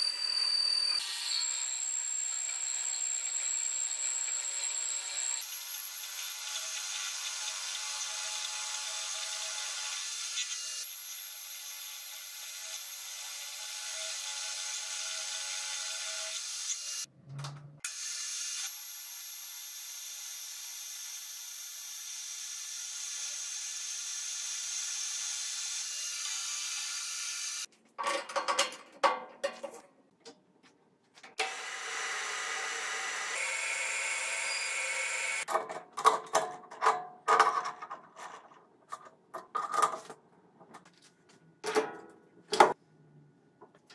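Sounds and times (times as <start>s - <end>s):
metal lathe cutting steel: 31.4s - 35.5s.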